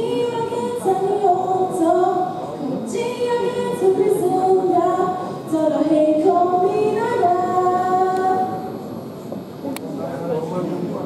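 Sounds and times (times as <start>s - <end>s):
woman singing long held notes: 0.0s - 8.7s
faint backing music: 0.0s - 11.0s.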